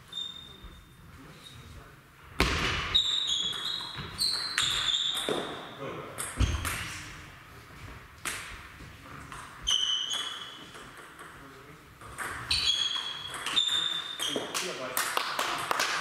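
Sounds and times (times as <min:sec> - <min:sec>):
short high-pitched squeaks: 0:00.0 - 0:01.6, 0:03.0 - 0:05.3, 0:09.7 - 0:10.7, 0:12.5 - 0:14.5.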